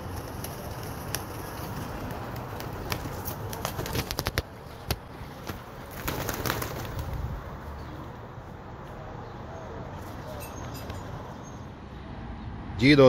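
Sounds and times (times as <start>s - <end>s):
wing flaps: 0.0s - 7.6s
pigeons cooing: 9.0s - 11.6s.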